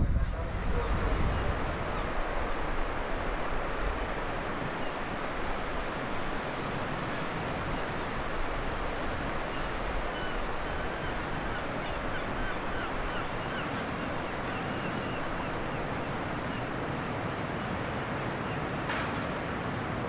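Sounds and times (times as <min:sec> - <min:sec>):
sea waves rushing: 0:00.0 - 0:20.0
wind: 0:00.0 - 0:20.0.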